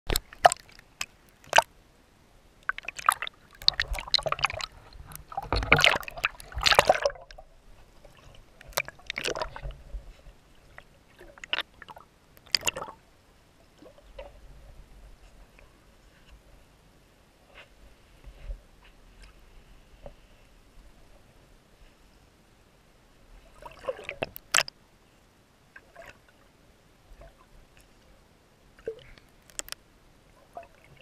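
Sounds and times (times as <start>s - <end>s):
sea water splashing and sloshing: 0.1s - 1.7s, 2.6s - 16.7s, 23.4s - 24.7s, 25.7s - 26.5s, 28.8s - 31.0s.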